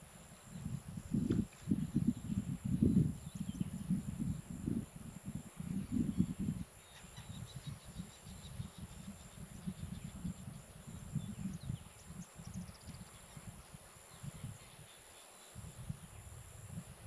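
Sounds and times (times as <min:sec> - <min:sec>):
high insect drone: 0:00.0 - 0:17.0
faint bird chirps: 0:05.7 - 0:16.3.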